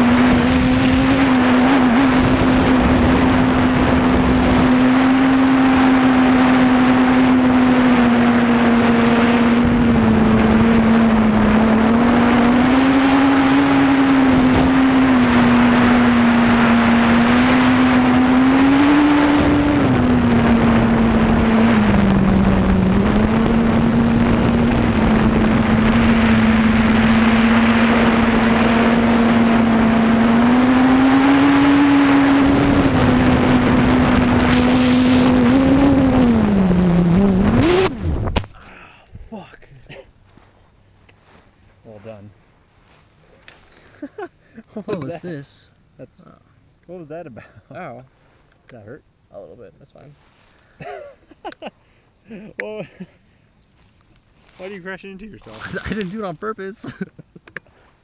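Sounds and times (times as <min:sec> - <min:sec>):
drone motors and propellers buzzing: 0:00.0 - 0:38.6.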